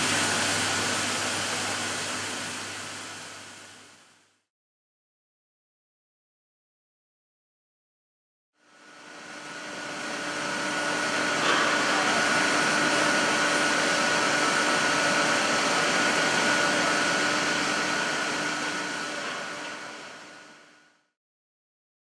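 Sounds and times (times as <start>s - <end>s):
machinery whirring and humming: 0.0s - 4.1s, 8.7s - 20.8s.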